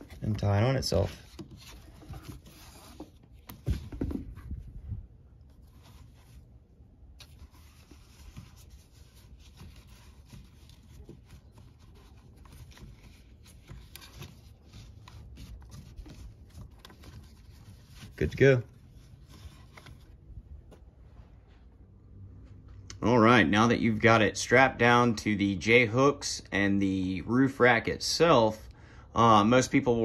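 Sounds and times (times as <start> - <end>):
strap webbing rubbing: 0.0 - 21.0.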